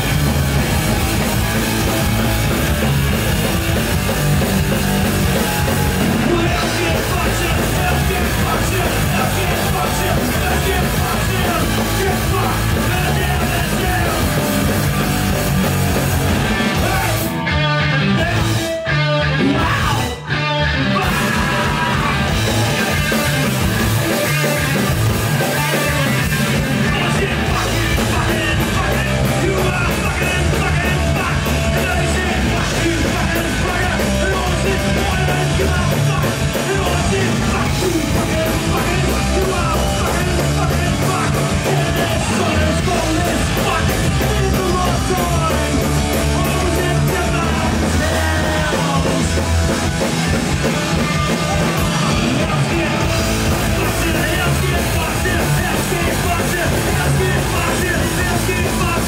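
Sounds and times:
punk rock band playing: 0.0 - 59.0.

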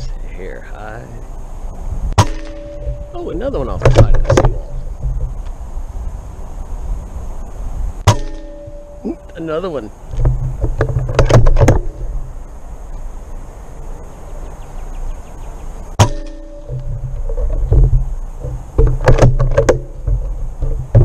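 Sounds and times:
pellet rifle shot: 2.2 - 2.9, 8.1 - 8.6.

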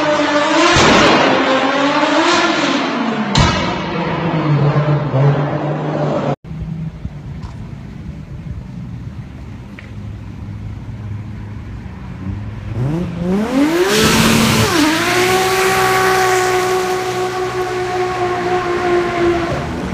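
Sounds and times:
another engine at high revs: 0.0 - 6.4, 11.8 - 19.9
car engine revving: 0.0 - 6.4, 11.0 - 19.9.

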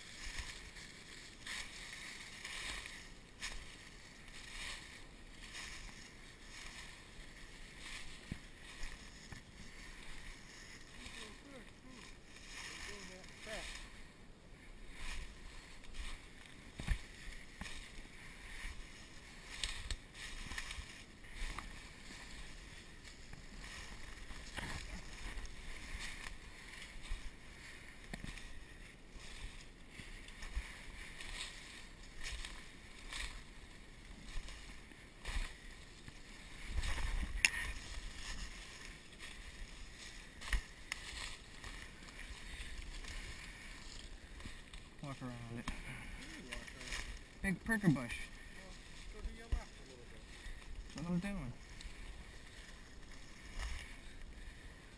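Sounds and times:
branches scraping: 0.0 - 54.9
footsteps crunching dry leaves: 0.0 - 54.9
twigs snapping: 19.4 - 20.8, 40.3 - 44.8.

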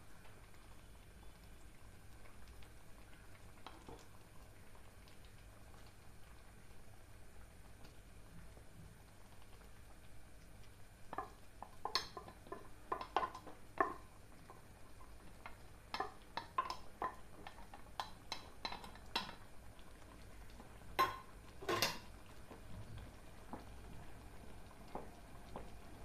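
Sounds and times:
metal bowl clinking against pan: 21.0 - 22.0.

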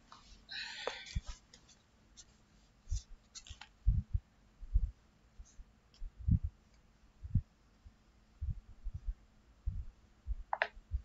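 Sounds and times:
dull low thumps: 3.8 - 5.0, 6.0 - 6.6, 7.2 - 7.5, 8.4 - 11.0.

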